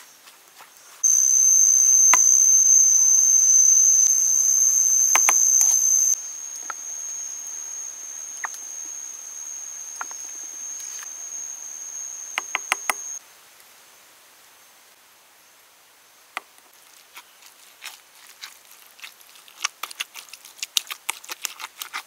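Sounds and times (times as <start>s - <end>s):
high-pitched insect whine: 1.0s - 13.2s.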